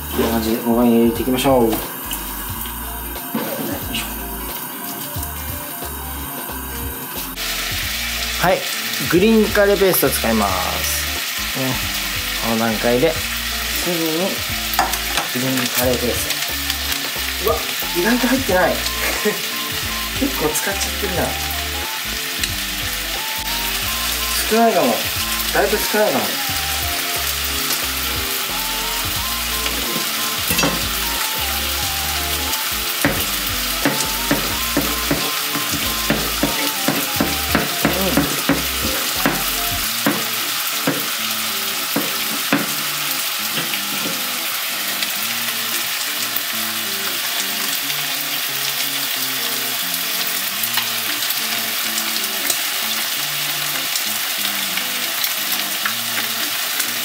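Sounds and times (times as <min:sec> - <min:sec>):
soft background music: 0:00.0 - 0:57.0
steady crackling hiss: 0:00.0 - 0:57.0
knife tapping on plastic board: 0:33.0 - 0:41.1, 0:42.0 - 0:42.8.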